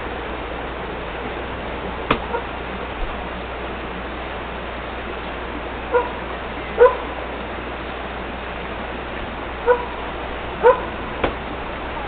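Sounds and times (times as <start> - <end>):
steady background hiss: 0.0 - 12.0
dog barking: 6.8 - 7.0, 9.6 - 9.9, 10.6 - 11.0.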